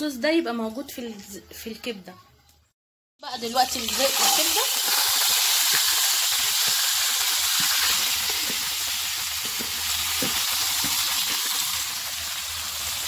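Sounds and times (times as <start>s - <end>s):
liver sizzling in frying pan: 3.2s - 13.0s.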